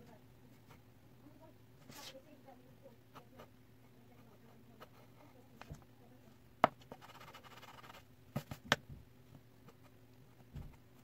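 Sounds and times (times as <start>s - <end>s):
pencil scratching on paper: 3.1s - 5.4s, 6.6s - 8.5s
pencil tap: 6.6s - 6.9s.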